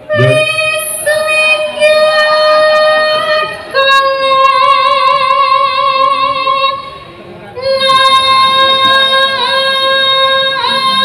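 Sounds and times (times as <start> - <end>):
woman singing long notes: 0.0 - 6.8.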